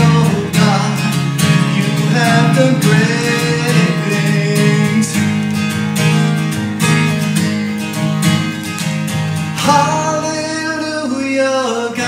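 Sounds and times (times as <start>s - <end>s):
man singing: 0.0s - 5.5s, 9.6s - 12.0s
acoustic guitar strumming: 0.0s - 12.0s.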